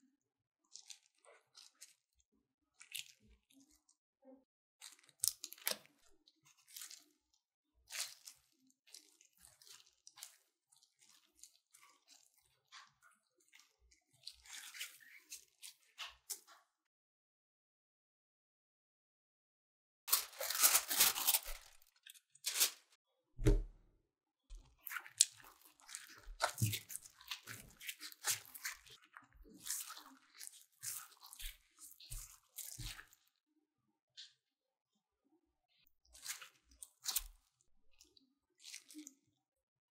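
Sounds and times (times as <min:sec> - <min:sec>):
dough squelching: 0:00.7 - 0:04.0, 0:04.8 - 0:16.6, 0:20.1 - 0:23.8, 0:24.5 - 0:33.3, 0:36.1 - 0:39.2
plastic gloves crinkling: 0:20.1 - 0:23.0, 0:24.8 - 0:33.2.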